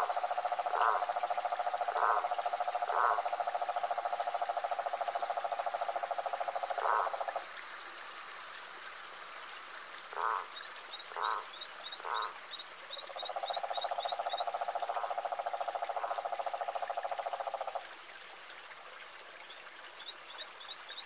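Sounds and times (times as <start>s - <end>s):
frog croaks: 0.0s - 7.5s, 10.1s - 17.8s
frogs trilling: 0.0s - 17.8s, 20.0s - 21.0s.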